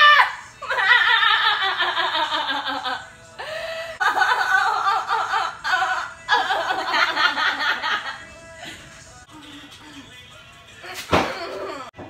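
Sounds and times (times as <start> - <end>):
women giggling: 0.6 - 3.1, 4.0 - 8.9.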